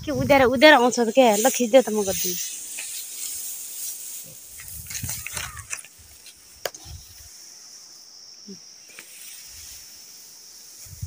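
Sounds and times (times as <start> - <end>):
insects buzzing: 0.0 - 11.0
twigs crackling and snapping: 4.5 - 6.8.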